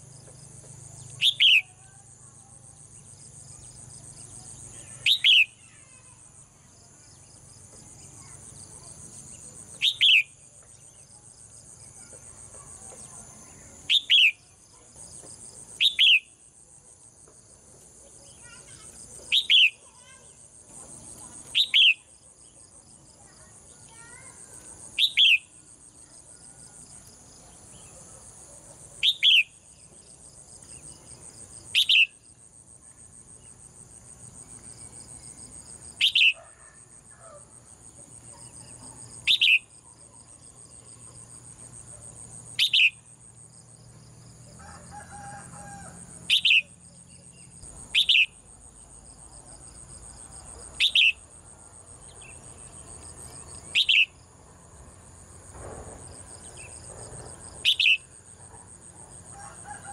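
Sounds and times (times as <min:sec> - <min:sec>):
high insect drone: 0:00.0 - 0:59.9
bird sharp chirps: 0:01.0 - 0:01.8, 0:04.8 - 0:05.8, 0:09.8 - 0:10.4, 0:13.9 - 0:14.5, 0:15.8 - 0:16.4, 0:18.4 - 0:19.9, 0:21.5 - 0:22.1, 0:25.0 - 0:25.6, 0:29.0 - 0:29.6, 0:31.7 - 0:32.2, 0:36.0 - 0:36.4, 0:38.4 - 0:39.8, 0:42.6 - 0:43.1, 0:46.3 - 0:48.4, 0:50.8 - 0:51.2, 0:53.6 - 0:54.2, 0:57.6 - 0:58.1.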